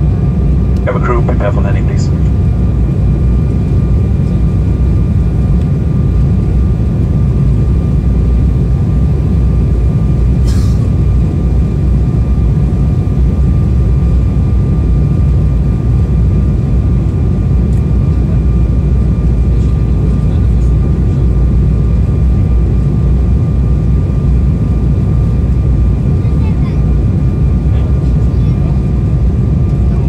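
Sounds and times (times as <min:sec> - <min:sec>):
airliner cabin drone: 0:00.0 - 0:30.0
faint steady whine: 0:00.0 - 0:30.0.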